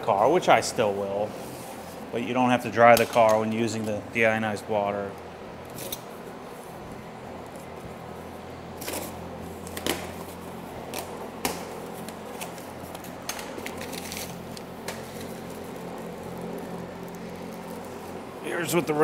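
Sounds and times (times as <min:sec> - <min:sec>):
steady low hum: 0:00.0 - 0:19.0
packing paper rustling: 0:11.8 - 0:19.0.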